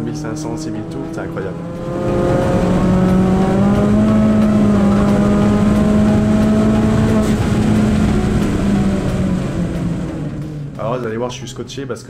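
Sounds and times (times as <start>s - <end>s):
turbocharged car engine revving: 0.0s - 11.4s.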